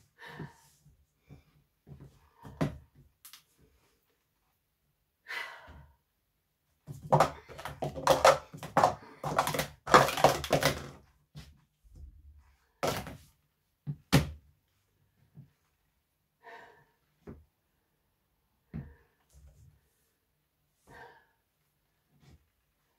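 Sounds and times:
hands slapping timer pads: 0:07.0 - 0:11.0
plastic cups clattering: 0:07.0 - 0:11.0.

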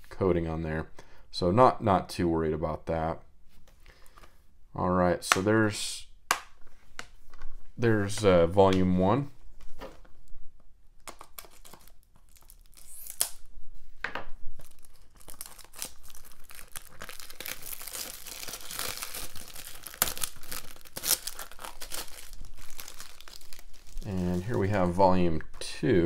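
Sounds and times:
plastic wrap crinkling and tearing: 0:11.0 - 0:13.5, 0:14.5 - 0:25.0.

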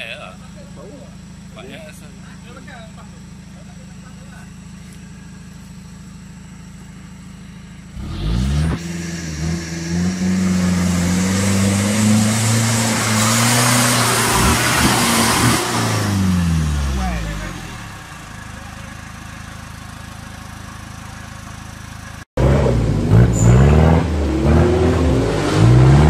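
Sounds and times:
off-road vehicle engine revving: 0:00.0 - 0:26.0
spinning tyres churning mud: 0:10.7 - 0:16.1.

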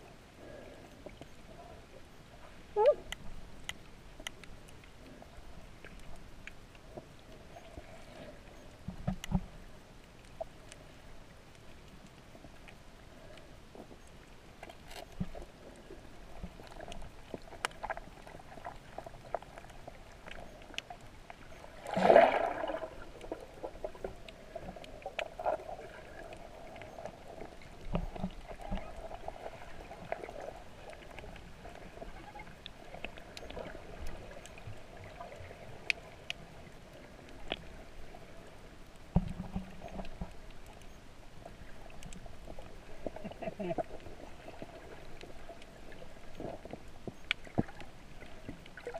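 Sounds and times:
muffled underwater noise: 0:00.0 - 0:03.5, 0:15.1 - 0:48.9
faint steady hum: 0:00.0 - 0:48.9
small clicks: 0:02.8 - 0:21.8, 0:45.1 - 0:48.9
rush of bubbles: 0:21.8 - 0:23.0.

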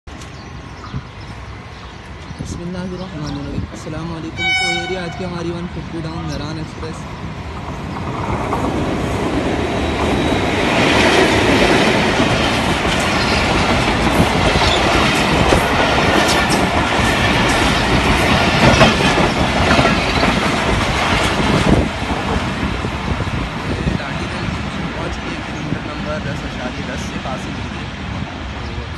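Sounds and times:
train wheels rushing on rails: 0:00.1 - 0:28.9
clickety-clack over rail joints: 0:07.5 - 0:28.6.

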